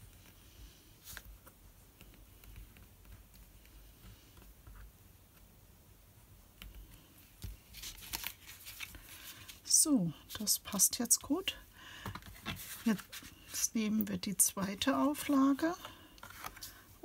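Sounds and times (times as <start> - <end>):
card stock rustling: 6.8 - 9.7, 12.0 - 13.6, 14.9 - 16.9.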